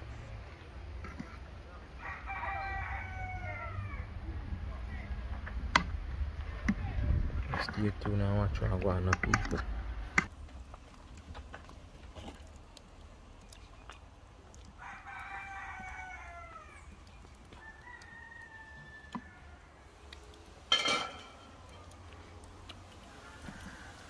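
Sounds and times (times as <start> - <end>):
rooster crowing: 2.0 - 4.2, 14.8 - 16.9, 17.5 - 19.9, 23.0 - 24.0.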